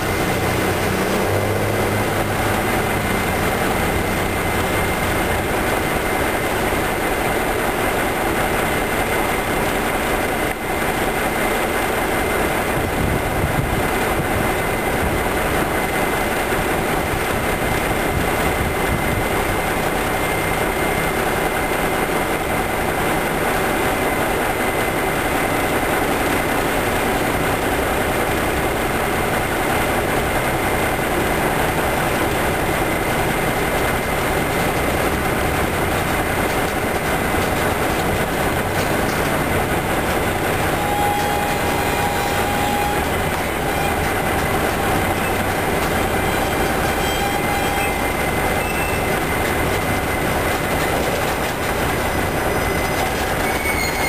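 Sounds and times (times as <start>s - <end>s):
diesel locomotives idling: 0.0s - 54.0s.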